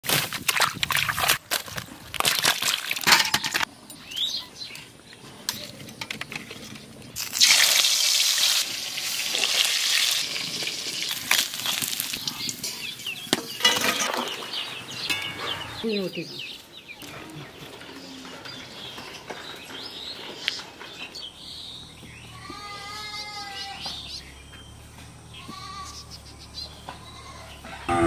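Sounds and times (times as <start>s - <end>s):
fish sizzling in hot oil: 7.2s - 12.8s
crackling noises: 8.6s - 12.8s.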